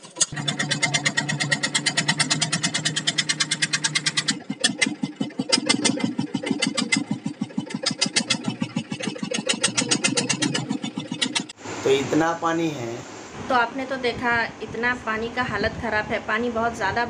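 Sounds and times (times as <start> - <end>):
boat engine chugging: 0.0 - 11.6.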